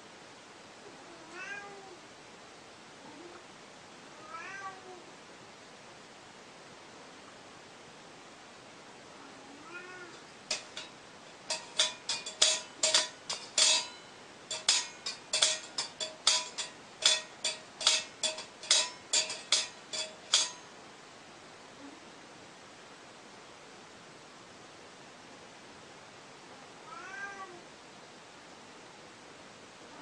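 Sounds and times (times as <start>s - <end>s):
cat meow: 0.9s - 2.0s, 4.1s - 5.1s, 9.2s - 10.2s, 26.8s - 27.7s
short bright ringing taps: 11.5s - 20.7s.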